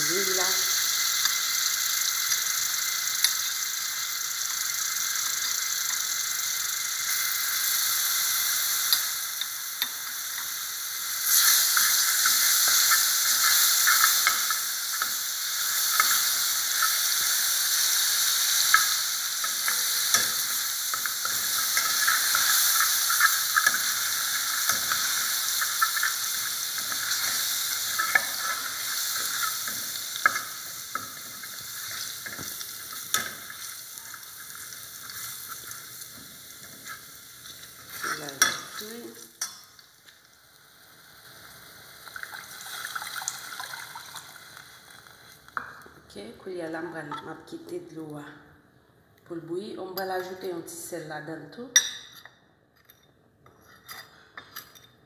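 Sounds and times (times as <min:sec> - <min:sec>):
garlic sizzling in hot oil: 0:00.0 - 0:45.8
metal spoon stirring: 0:18.6 - 0:38.8.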